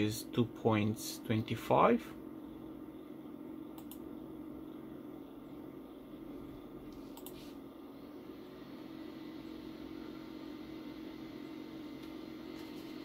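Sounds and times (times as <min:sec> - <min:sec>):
equipment hum: 0:00.0 - 0:13.0
light clicks: 0:07.2 - 0:07.4.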